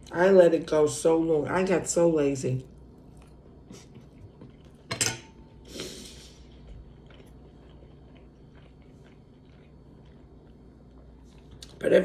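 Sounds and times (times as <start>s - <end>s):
person chewing: 2.7s - 11.8s
fork clinking on a plate: 4.9s - 5.4s.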